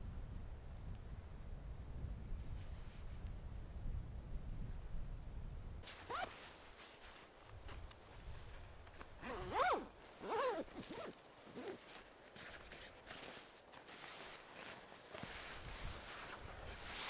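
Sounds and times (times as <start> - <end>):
zipper pulled: 5.8 - 6.6, 9.2 - 17.0.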